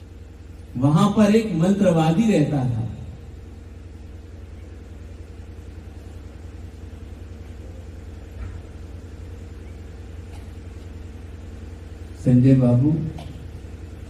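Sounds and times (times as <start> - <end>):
low hum and rumble: 0.0 - 14.0
faint steady tone: 2.6 - 12.6.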